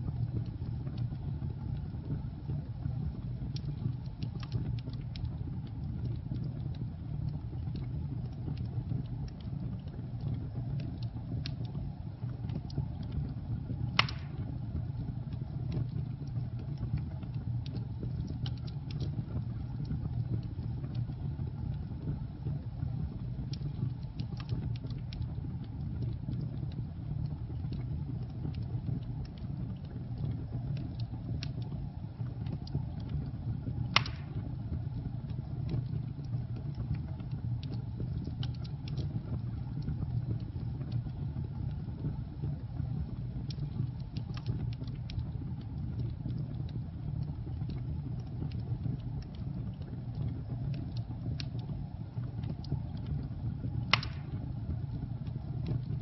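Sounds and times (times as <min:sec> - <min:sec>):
fire crackling: 0:00.1 - 0:56.0
fire flames rumbling: 0:00.1 - 0:56.0
sharp pops from fire: 0:13.8 - 0:14.7, 0:33.8 - 0:34.9, 0:37.6 - 0:39.1, 0:53.8 - 0:54.6.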